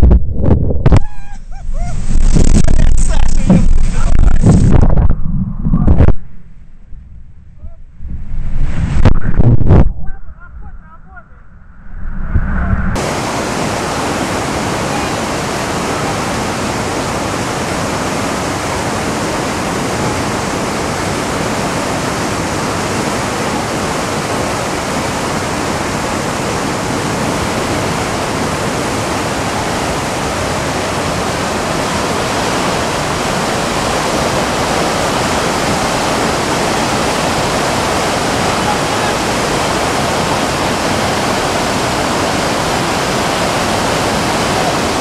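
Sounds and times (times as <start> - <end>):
river rapids rushing: 13.0 - 45.0.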